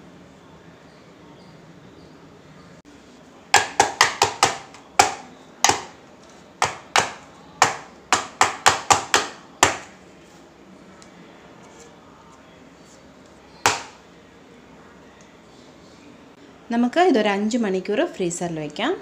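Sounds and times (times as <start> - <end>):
metal baking tin knocking on countertop: 3.6 - 5.9, 6.6 - 9.9.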